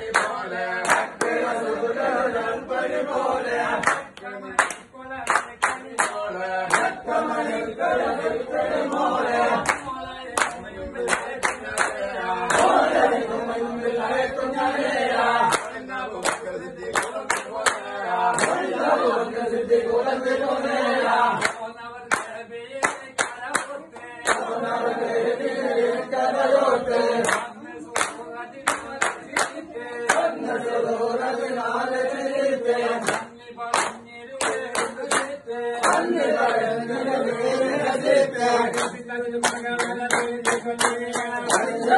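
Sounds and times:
hand claps in unison: 0.0s - 2.1s, 3.7s - 7.3s, 8.8s - 13.1s, 15.4s - 18.8s, 21.3s - 24.6s, 27.2s - 30.8s, 32.8s - 36.7s, 38.0s - 41.9s
men singing a chant-like song: 0.0s - 41.9s.

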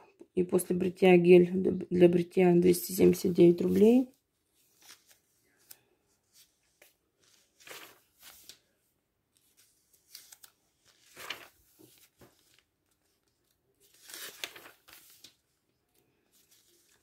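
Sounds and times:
paper swishes and rustles: 3.4s - 8.8s, 9.4s - 15.6s, 16.2s - 17.0s
catalogue pages turning: 3.4s - 17.0s.

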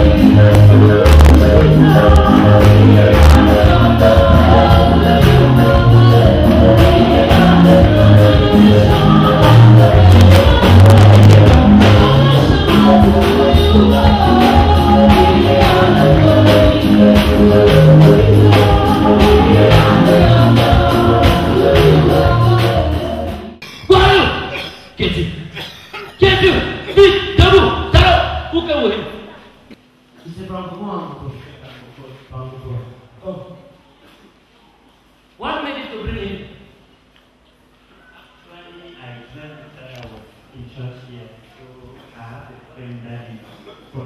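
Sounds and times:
stepping bass line: 0.0s - 25.3s
gospel singing over a beat: 0.0s - 28.5s.

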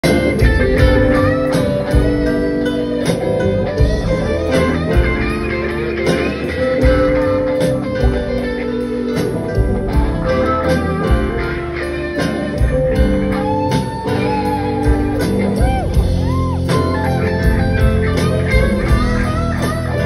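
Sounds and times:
drums: 0.0s - 20.0s
electric guitar solo: 0.0s - 20.0s
keyboard chords: 0.0s - 20.0s.

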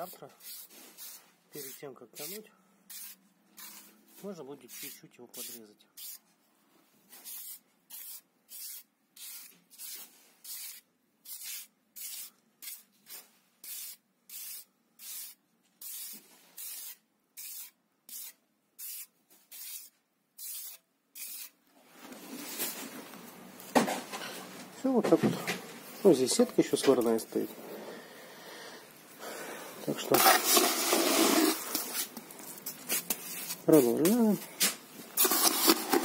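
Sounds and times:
trowel scraping wet mortar: 30.0s - 32.1s, 35.2s - 36.0s.

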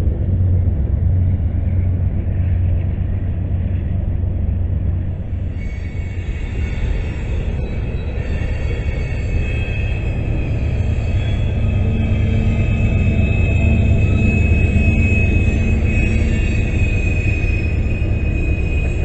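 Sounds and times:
train wheels rumbling on rails: 0.0s - 19.0s
high squealing tones: 5.4s - 19.0s.

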